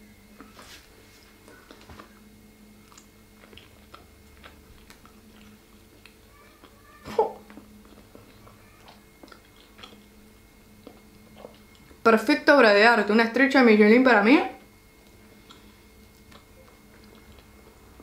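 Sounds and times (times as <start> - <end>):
person chewing wetly: 1.4 - 12.0, 14.9 - 18.0.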